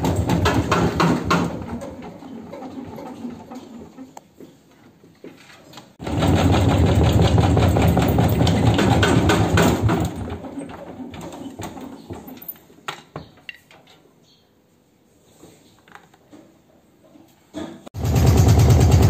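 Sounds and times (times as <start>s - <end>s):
washing machine drum rattling and banging: 0.0s - 3.6s, 6.0s - 12.5s.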